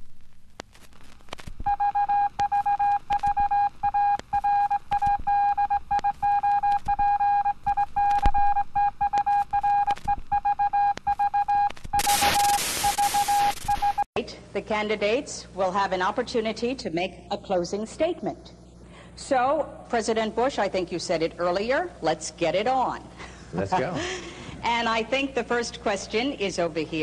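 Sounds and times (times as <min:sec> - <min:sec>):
television static hiss: 0:00.0 - 0:02.4, 0:11.7 - 0:27.0
crackling clicks: 0:00.0 - 0:03.5, 0:04.1 - 0:07.0, 0:07.6 - 0:08.4, 0:09.0 - 0:14.0
broadcast test tone: 0:01.7 - 0:14.1.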